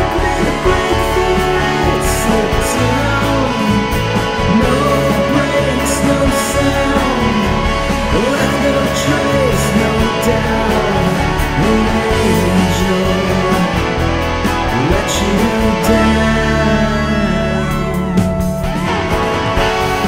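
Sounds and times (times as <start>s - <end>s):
rock music with guitar: 0.0s - 20.0s.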